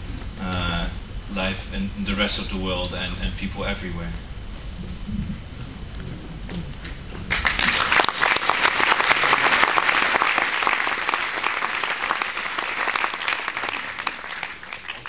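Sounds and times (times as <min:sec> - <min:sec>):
audience applauding: 0:07.3 - 0:15.0.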